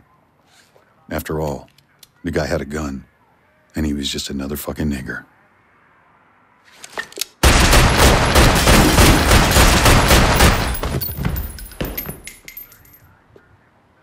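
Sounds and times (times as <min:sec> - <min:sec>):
handgun shots: 0:07.4 - 0:12.4.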